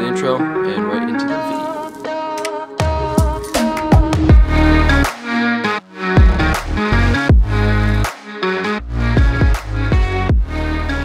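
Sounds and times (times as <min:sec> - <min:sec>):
electronic music with heavy bass: 0:01.4 - 0:11.0
falling pitch sweeps: 0:05.9 - 0:07.6.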